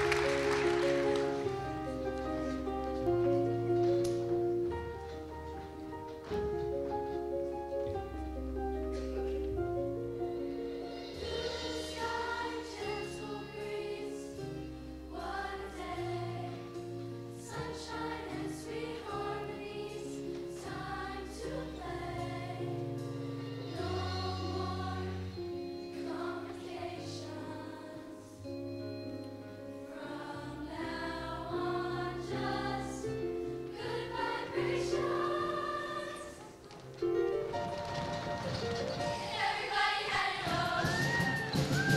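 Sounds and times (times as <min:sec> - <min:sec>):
instrumental accompaniment: 0:00.0 - 0:30.4
choir singing: 0:11.1 - 0:23.0, 0:23.7 - 0:28.5, 0:29.9 - 0:36.6, 0:39.0 - 0:41.9.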